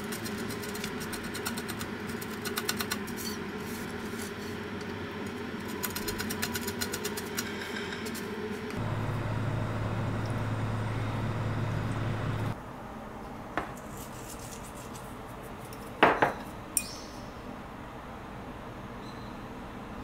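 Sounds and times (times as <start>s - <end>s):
steady low hum: 0.0s - 13.8s.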